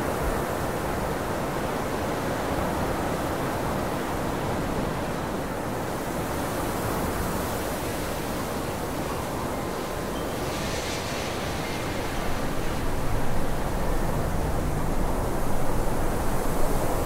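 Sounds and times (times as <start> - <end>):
film hiss and rumble: 8.5 - 17.0.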